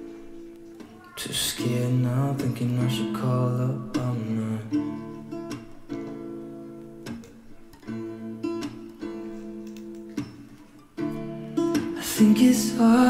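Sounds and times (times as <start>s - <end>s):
acoustic guitar strumming: 0.0s - 13.0s
person singing pop song: 0.8s - 5.2s, 11.8s - 13.0s.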